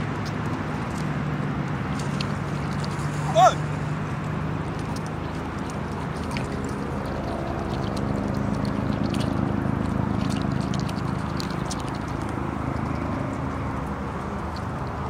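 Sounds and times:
engine running: 0.0 - 15.0.

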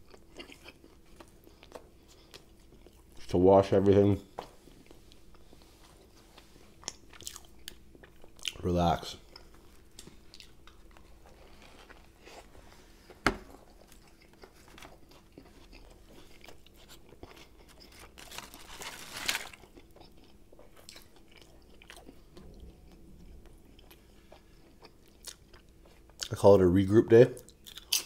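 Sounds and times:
chewing sandwich: 0.0 - 3.3, 4.7 - 26.4, 27.4 - 28.0
crunchy crackle: 13.6 - 22.2.

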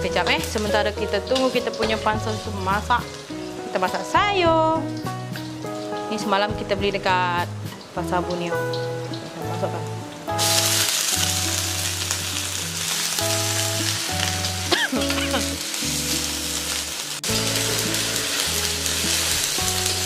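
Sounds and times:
greens sizzling in a wok: 0.0 - 20.0
metal spatula in a wok: 0.1 - 2.4.

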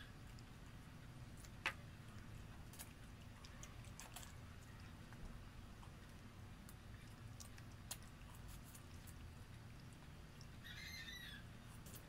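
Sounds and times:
chewing and mouth smacks: 0.0 - 11.0
low steady hum: 0.0 - 12.0.

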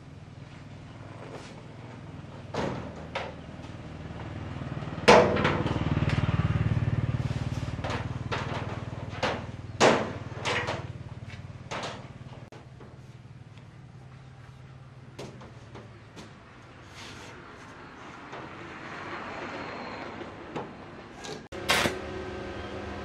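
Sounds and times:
metal knocks and clanks: 5.1 - 5.9, 7.7 - 13.0.

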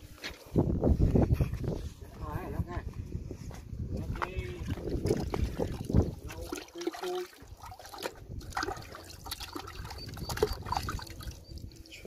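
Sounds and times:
hands splashing in bucket water: 4.6 - 11.9.

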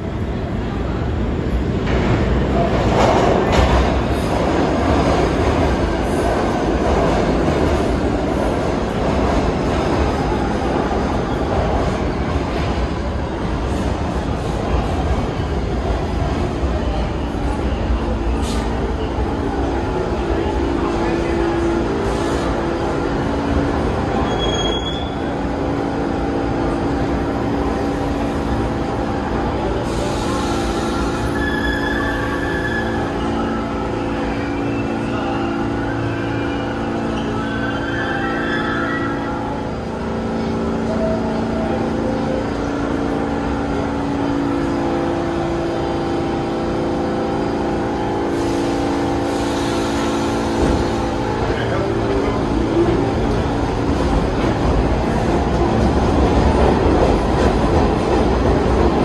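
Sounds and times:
subway train wheels and motors: 0.0 - 59.0
high wheel squeal: 24.2 - 25.3, 30.6 - 39.5
hiss: 48.3 - 51.1.

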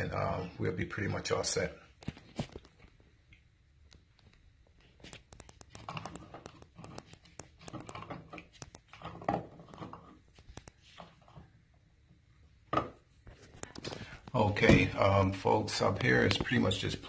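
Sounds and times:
small clicks and rustles of wires: 1.9 - 11.6, 13.2 - 14.4.

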